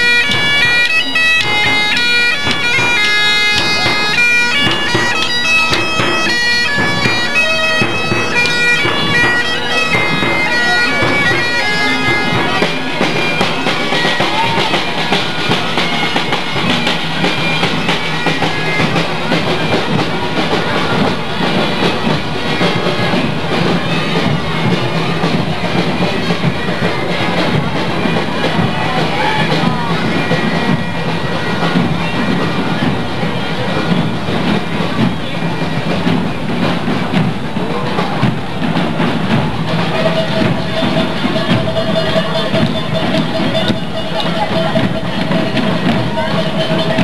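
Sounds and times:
bagpipes playing a melody: 0.0s - 33.0s.

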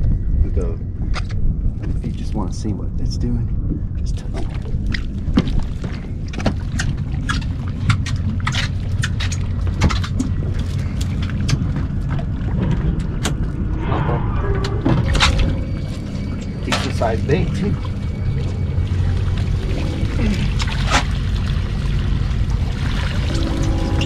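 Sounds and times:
steady low rumble: 0.0s - 24.0s
water lapping against boat hull: 3.7s - 13.8s, 15.0s - 24.0s.

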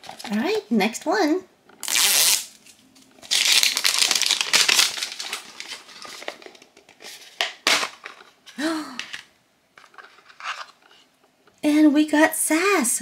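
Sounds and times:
plastic wrapping crinkling and tearing: 1.8s - 8.3s
plastic box clicks and rustles: 3.3s - 8.4s.

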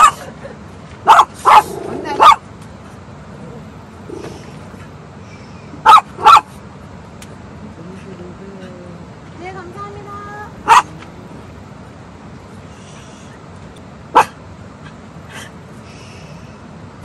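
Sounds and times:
small dog yapping: 1.1s - 2.4s, 5.8s - 6.5s, 10.6s - 11.1s, 14.1s - 14.4s.

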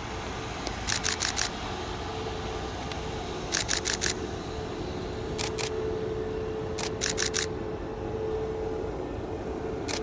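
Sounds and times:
jet engine rumble and whine: 0.0s - 10.0s
camera shutter clicks: 0.8s - 1.5s, 3.5s - 4.2s, 5.4s - 5.7s, 6.8s - 7.5s.

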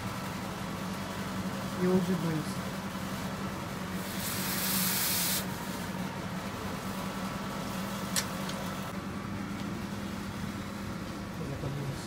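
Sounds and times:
steady low hum: 0.0s - 12.0s
hot blade hissing in quench: 4.0s - 5.5s.

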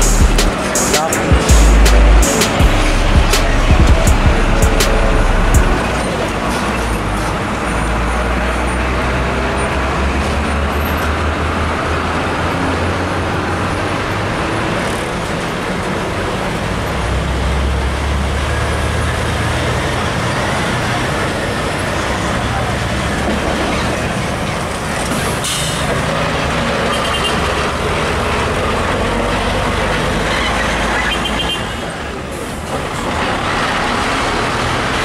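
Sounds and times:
road traffic noise: 0.0s - 35.0s
truck diesel engine rumbling: 0.0s - 35.0s.

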